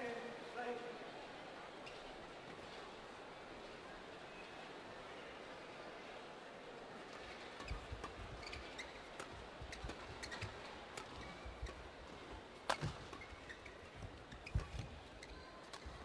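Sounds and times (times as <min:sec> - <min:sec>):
court shoes squeaking: 0:07.2 - 0:16.0.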